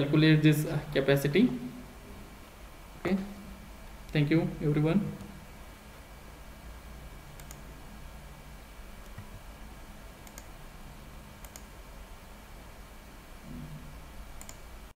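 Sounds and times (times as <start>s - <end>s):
low electrical hum: 0.0s - 15.0s
computer mouse double clicks: 10.2s - 10.5s, 14.4s - 14.6s.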